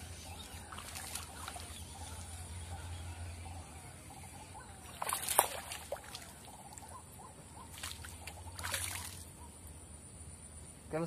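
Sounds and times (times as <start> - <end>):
fish thrashing and splashing: 0.5 - 2.0, 4.9 - 6.7, 7.7 - 9.3.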